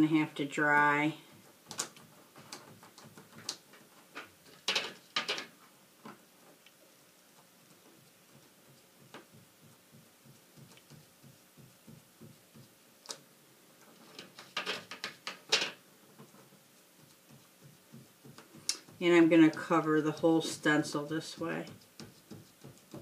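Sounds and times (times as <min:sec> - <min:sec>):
sponge dabbing on paper: 0:06.3 - 0:13.0, 0:15.8 - 0:23.0.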